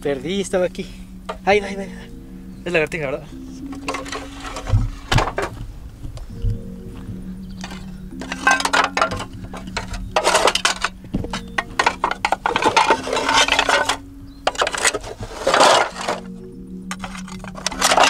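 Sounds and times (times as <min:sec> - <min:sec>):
background music: 0:00.0 - 0:18.0
metal hook scraping rubble: 0:03.7 - 0:05.5, 0:07.6 - 0:18.0.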